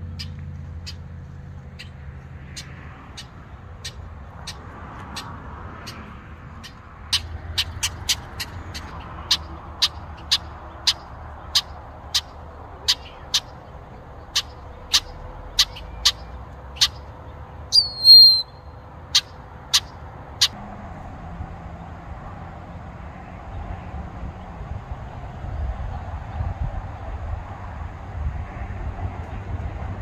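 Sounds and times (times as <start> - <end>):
blackbird chek calls: 6.6 - 20.6
squeaky bird whistle: 17.7 - 18.7.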